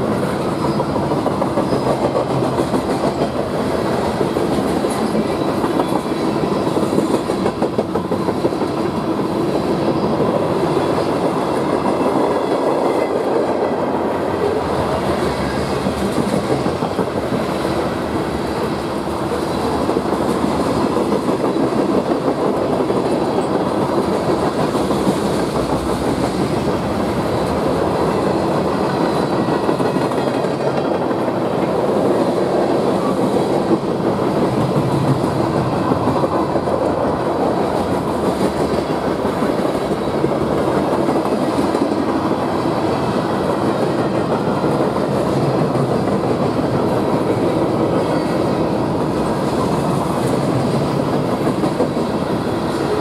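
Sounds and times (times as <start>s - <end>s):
train wheels rumbling on rails: 0.0s - 53.0s.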